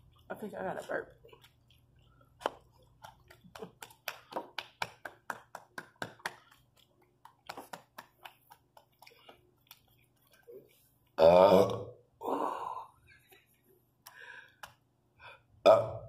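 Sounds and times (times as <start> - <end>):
hand patting chest: 3.5 - 10.0.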